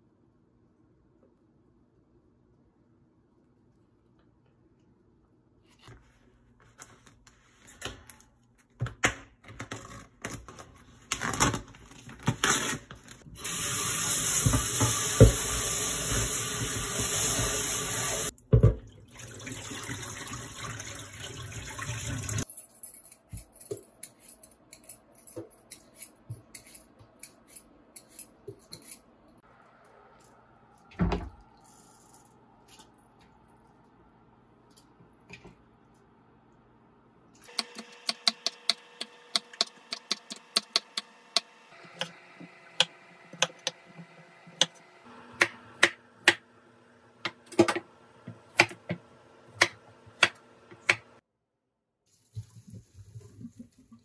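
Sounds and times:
tap running into sink: 14.2s - 17.8s.

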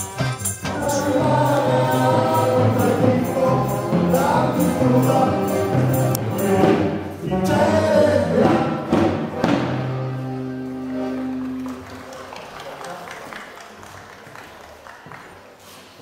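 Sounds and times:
folk dance band playing: 0.0s - 12.2s.

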